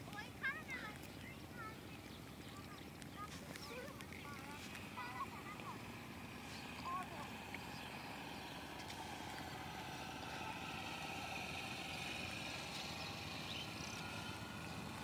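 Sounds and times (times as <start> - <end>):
engine-like drone with whine: 4.0 - 15.0.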